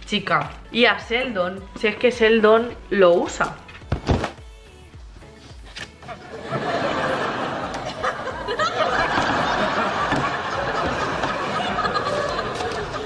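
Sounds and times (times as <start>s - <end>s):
studio audience laughing: 6.1s - 13.0s.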